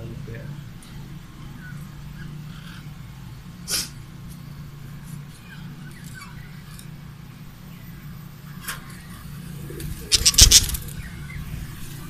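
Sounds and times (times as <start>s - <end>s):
loud rapid rattle: 10.1s - 10.8s
faint bird chirps: 10.1s - 11.6s.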